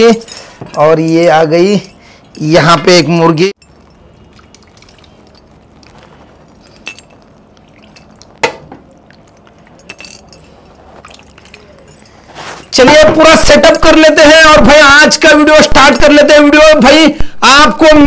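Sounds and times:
soft background noise: 0.0s - 14.0s.

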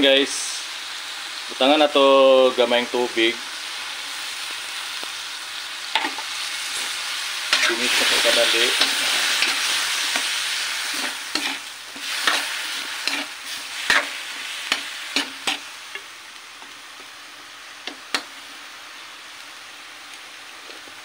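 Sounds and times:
food sizzling in a wok: 0.0s - 21.0s
spatula scraping a pan: 7.5s - 15.7s.

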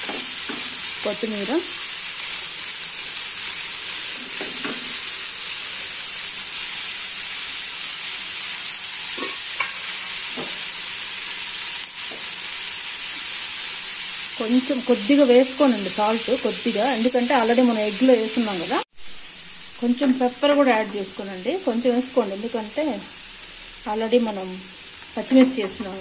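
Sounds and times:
vegetables sizzling in oil: 0.0s - 26.0s.

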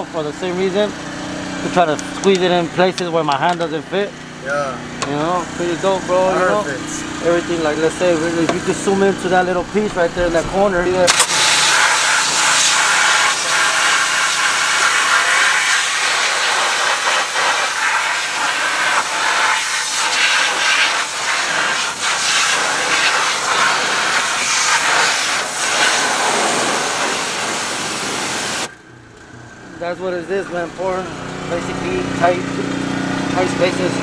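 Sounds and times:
steam cleaner jet hissing: 9.8s - 28.7s.

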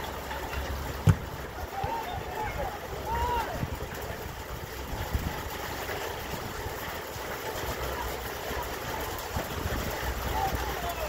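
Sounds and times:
wind buffeting microphone: 1.1s - 6.9s.

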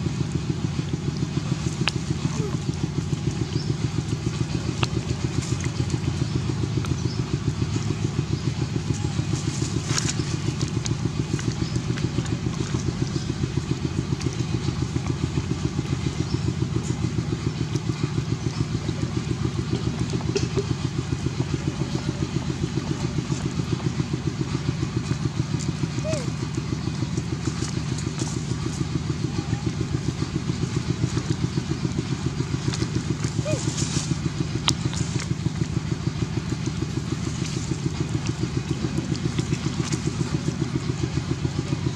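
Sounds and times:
engine idling: 0.0s - 41.9s.

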